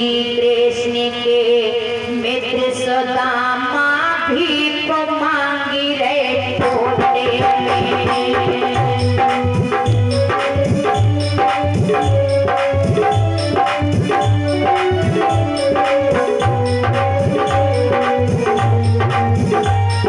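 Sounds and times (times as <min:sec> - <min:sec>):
woman singing slow melody: 0:00.0 - 0:09.2
tabla beat: 0:05.6 - 0:20.0.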